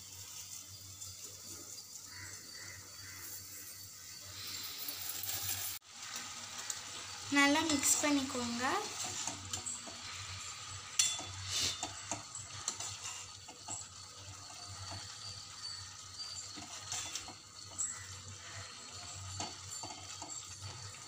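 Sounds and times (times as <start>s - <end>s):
water sloshing in a pan: 5.8s - 21.0s
ladle clinking and scraping pan: 7.6s - 21.0s.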